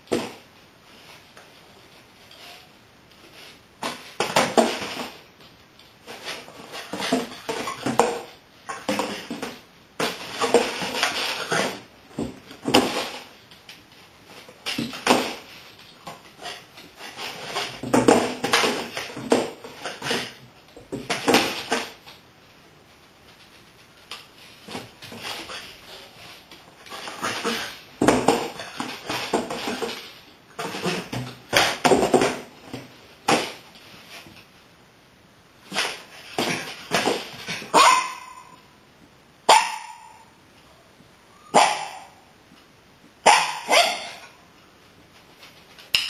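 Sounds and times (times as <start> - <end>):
cardboard box scraping on tile: 6.0 - 13.4, 14.2 - 22.0, 24.4 - 34.4.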